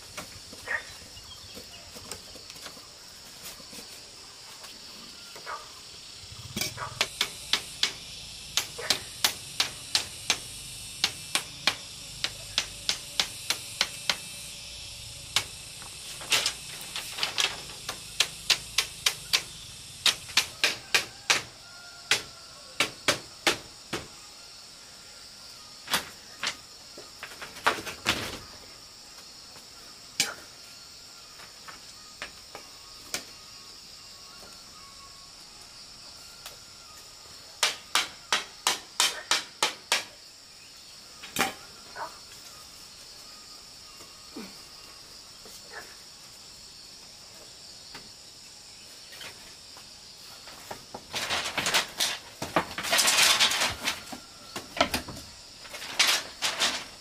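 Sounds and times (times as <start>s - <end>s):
steady high hiss: 0.0s - 57.0s
machete striking bamboo: 6.5s - 14.3s, 16.2s - 21.5s, 22.1s - 24.1s, 37.6s - 40.2s, 41.2s - 41.7s.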